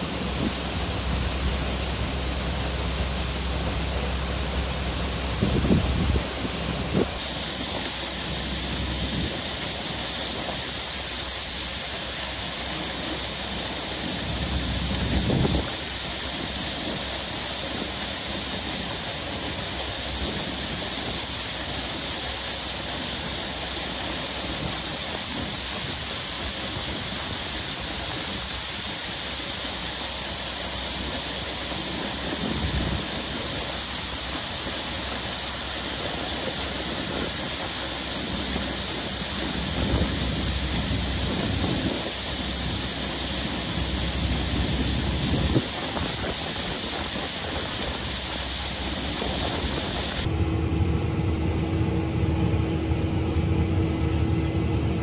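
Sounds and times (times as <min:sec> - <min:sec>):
wind gusts buffeting microphone: 0:00.0 - 0:10.6, 0:36.2 - 0:50.3
wind hissing across field: 0:00.0 - 0:50.3.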